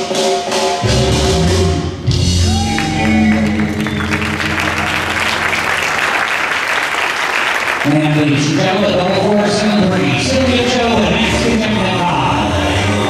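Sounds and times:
audience applause: 2.5s - 9.1s.

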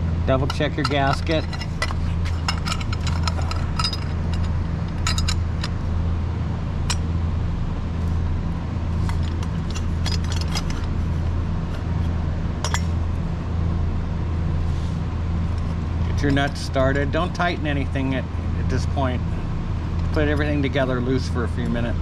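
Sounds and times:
steady low hum: 0.0s - 22.0s
light metallic clinks and taps: 0.5s - 5.8s, 12.6s - 12.9s.

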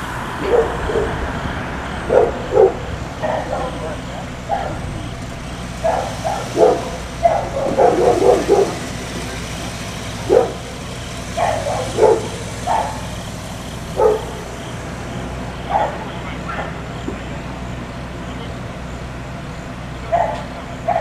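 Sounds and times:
vehicle engine idling: 0.0s - 21.0s
dog barking: 0.4s - 1.3s, 2.0s - 5.2s, 5.8s - 9.3s, 10.2s - 13.2s, 13.9s - 14.7s, 15.6s - 16.9s, 20.0s - 21.0s.

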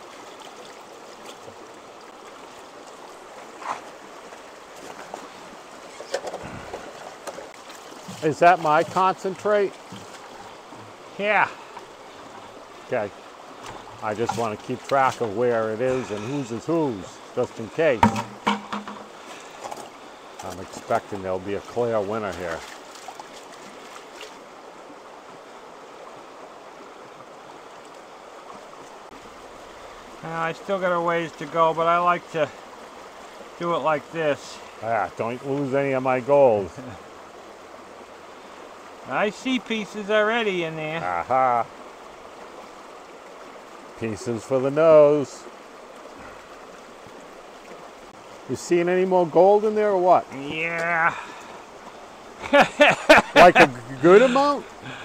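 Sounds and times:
stream rushing over rocks: 0.0s - 55.0s
water splash: 17.9s - 19.9s.

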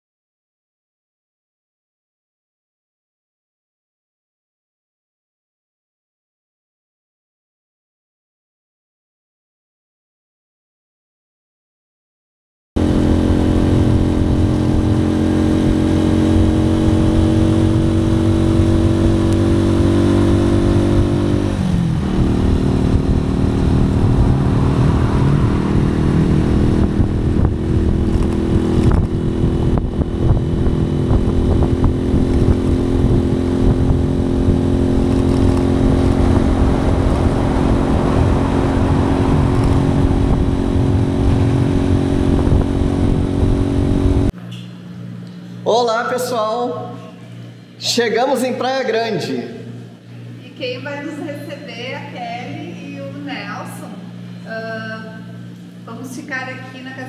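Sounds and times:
motorcycle engine running: 12.8s - 44.3s.

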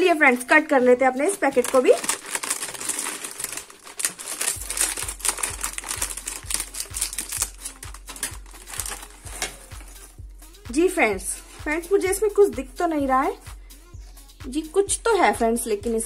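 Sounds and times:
plastic wrapper crinkling: 1.2s - 10.1s
soft low beat: 7.8s - 16.0s.

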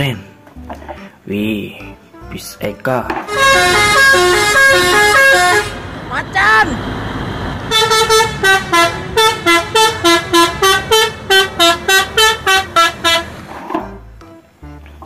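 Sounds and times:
multi-tone air horn tune: 3.3s - 6.6s, 7.7s - 13.5s.

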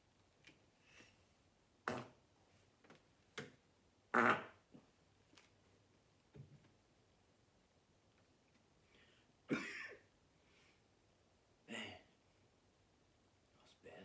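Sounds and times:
man farting: 1.8s - 2.2s, 4.1s - 4.8s.

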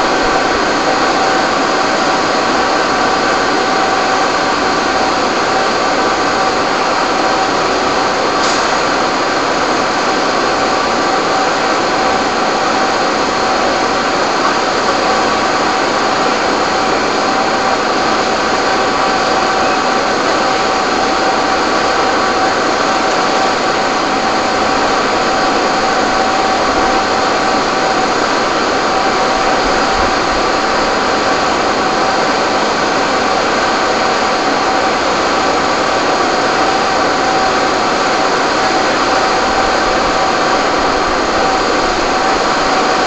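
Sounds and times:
fire engine pumps droning: 0.0s - 43.0s
steady whining tones: 0.0s - 43.0s
hiss: 6.1s - 17.0s.

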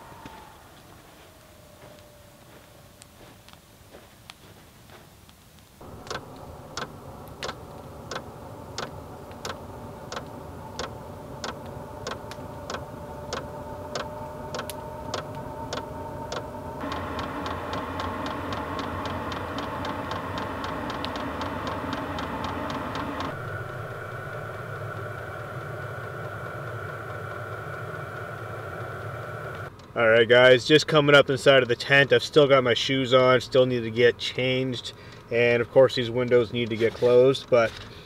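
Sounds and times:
fuel pump ticking: 5.8s - 29.7s
heater fan humming: 5.8s - 36.8s.

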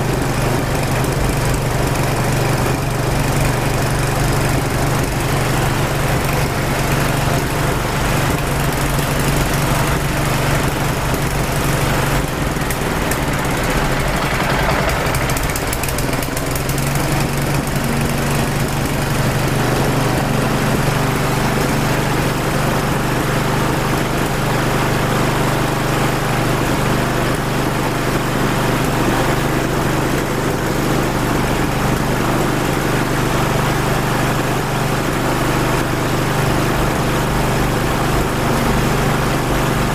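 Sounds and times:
engine running low hum: 0.0s - 39.9s.

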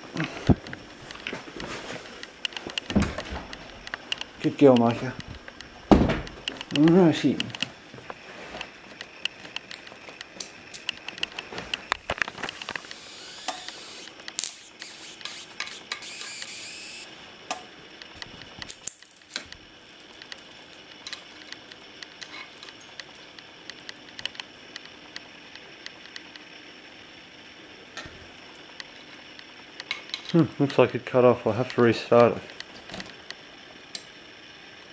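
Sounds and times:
high-voltage arcing crackling: 2.2s - 17.2s, 18.0s - 26.4s
ticks: 6.4s - 7.7s.

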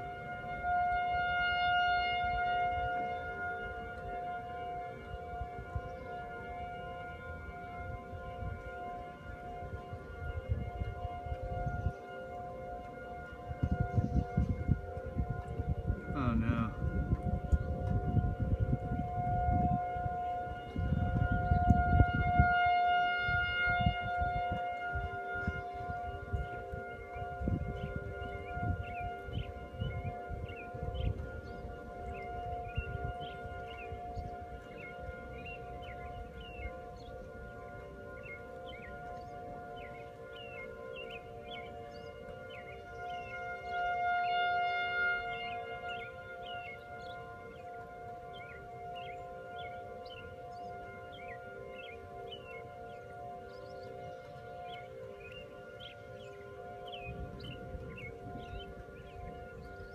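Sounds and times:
wind rumble on microphone: 0.0s - 39.8s, 53.6s - 59.9s
warning siren steady tone: 0.0s - 59.9s.

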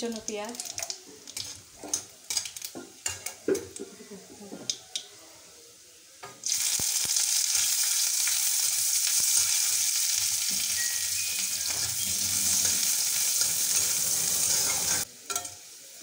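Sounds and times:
onion sizzling in oil: 0.0s - 3.8s, 5.8s - 16.0s
metal spatula scraping pan: 10.5s - 15.5s.

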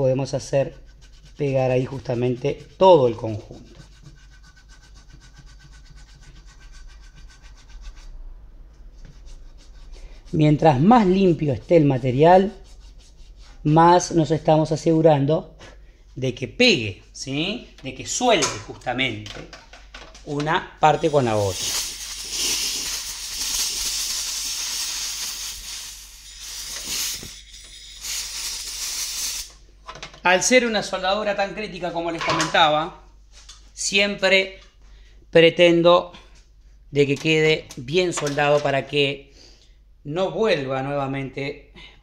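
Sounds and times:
torch flame hissing: 21.0s - 29.5s.

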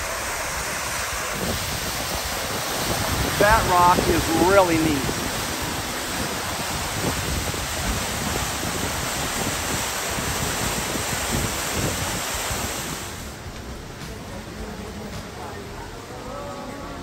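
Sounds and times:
waterfall pouring: 0.0s - 14.6s.

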